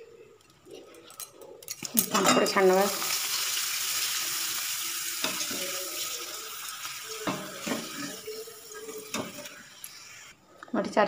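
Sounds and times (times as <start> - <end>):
frying in hot oil sizzle: 1.8 - 10.4.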